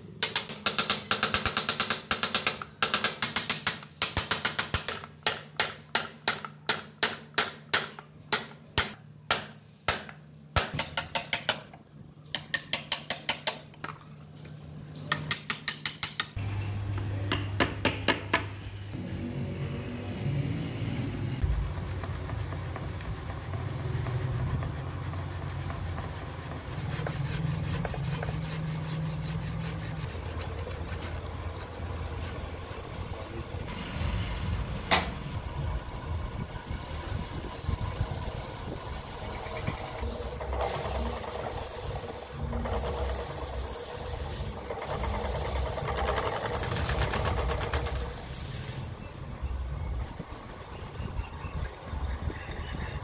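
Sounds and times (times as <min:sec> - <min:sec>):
low motor hum: 0:19.0 - 0:26.8, 0:30.1 - 0:41.4
sandpaper rasping on wood: 0:26.8 - 0:31.0.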